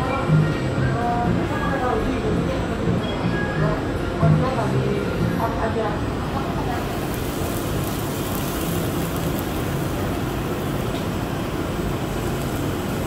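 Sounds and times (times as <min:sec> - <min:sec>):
beef sizzling on grill: 0:06.5 - 0:13.0.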